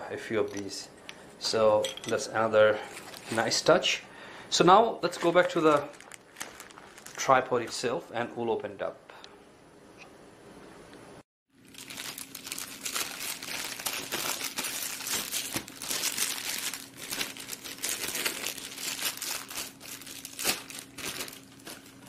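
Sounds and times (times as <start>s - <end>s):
plastic bag crinkling: 2.8s - 3.6s, 5.0s - 7.9s, 11.6s - 22.0s.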